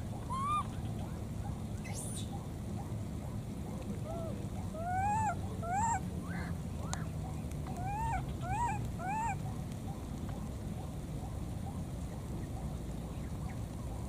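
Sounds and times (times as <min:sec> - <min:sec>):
baby monkeys crying: 0:00.3 - 0:00.8, 0:07.8 - 0:09.4.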